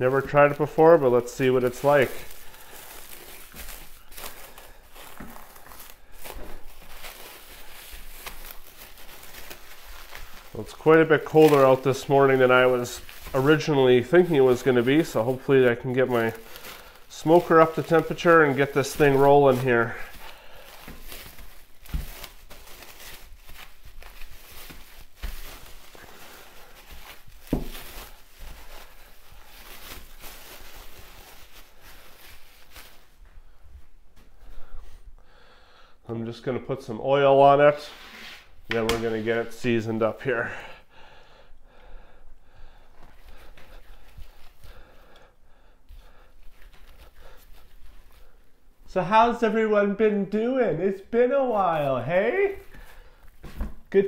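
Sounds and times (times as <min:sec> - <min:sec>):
plastic bag crinkling: 0:00.0 - 0:33.3.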